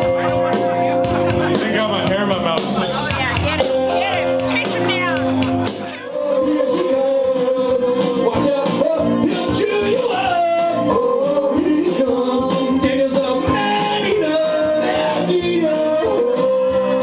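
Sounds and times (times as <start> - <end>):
recorded backing track: 0.0 - 17.0
men singing into microphones: 5.6 - 17.0.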